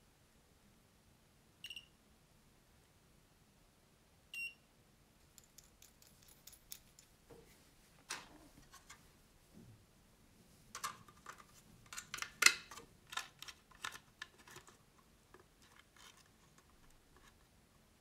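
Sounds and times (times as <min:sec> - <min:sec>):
short high beeps: 0:01.6 - 0:01.9, 0:04.4 - 0:04.6.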